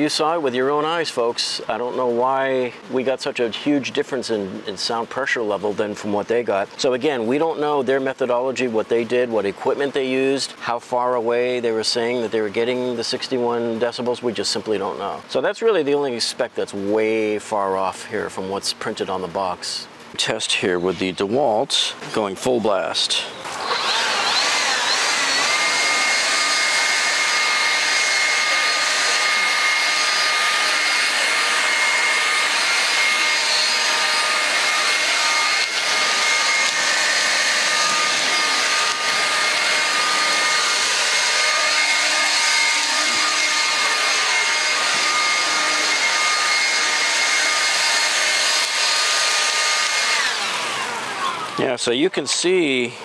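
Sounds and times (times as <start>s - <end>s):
leaf blower running: 23.4s - 53.0s.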